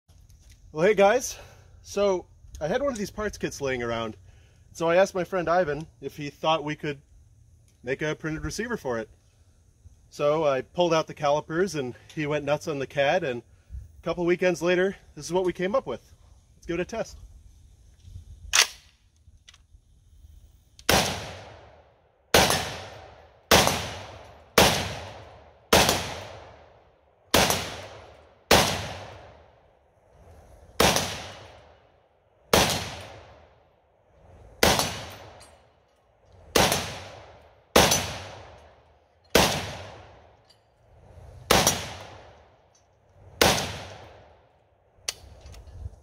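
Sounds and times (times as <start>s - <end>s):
rifle shots with echo: 20.9s - 26.7s, 27.3s - 29.4s, 30.8s - 31.6s, 32.5s - 33.4s, 34.6s - 35.4s, 36.5s - 38.6s, 39.3s - 40.2s, 41.5s - 42.4s, 43.4s - 44.3s.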